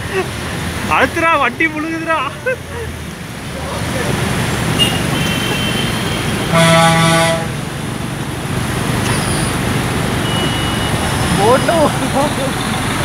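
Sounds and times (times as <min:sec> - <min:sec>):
traffic on flooded road: 0:00.0 - 0:13.0
vehicle horn blast: 0:04.8 - 0:07.6.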